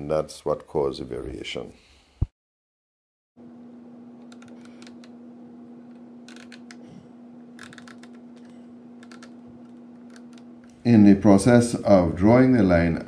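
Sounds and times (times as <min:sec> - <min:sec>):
steady low hum: 0:03.4 - 0:13.0.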